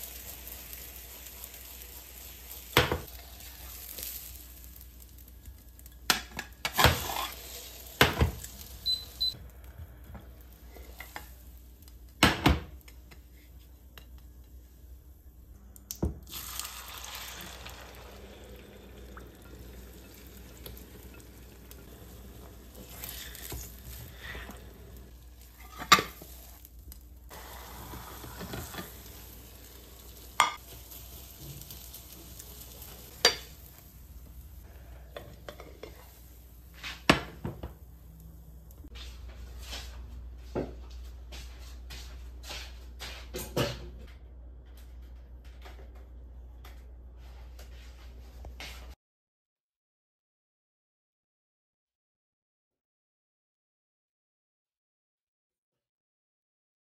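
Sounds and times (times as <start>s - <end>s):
faint sizzle of frying: 0.0s - 43.2s.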